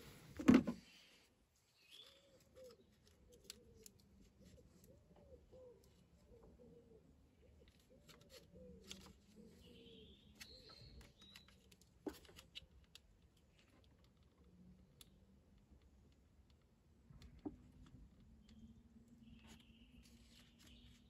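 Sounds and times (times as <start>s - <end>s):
bird chirping: 1.7s - 11.8s, 18.2s - 21.0s.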